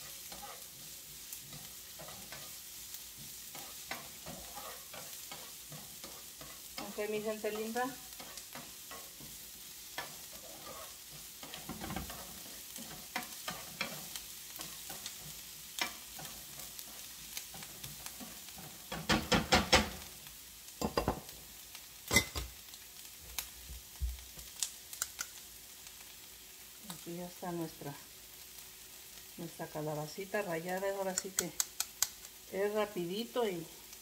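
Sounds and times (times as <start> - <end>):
utensil stirring and scraping: 0.0 - 9.4, 10.0 - 19.1
onion frying in oil: 0.0 - 34.0.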